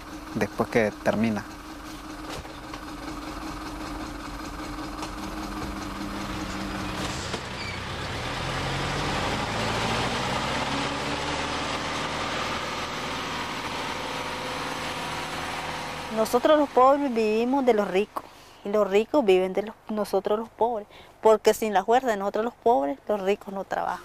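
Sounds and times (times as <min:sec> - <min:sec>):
truck engine revving: 0:00.0 - 0:18.1.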